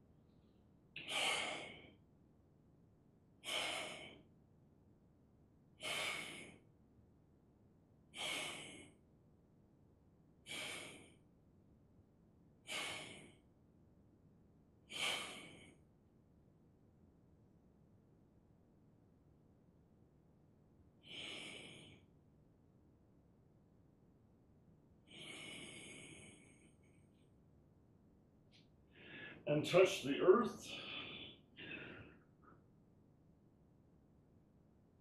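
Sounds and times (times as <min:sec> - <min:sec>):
person breathing out forcefully: 0:01.0 - 0:01.9, 0:03.4 - 0:04.2, 0:05.8 - 0:06.6, 0:08.2 - 0:09.0, 0:10.5 - 0:11.2, 0:12.7 - 0:13.4, 0:14.9 - 0:15.8, 0:21.0 - 0:22.0, 0:25.1 - 0:26.6, 0:30.7 - 0:32.2.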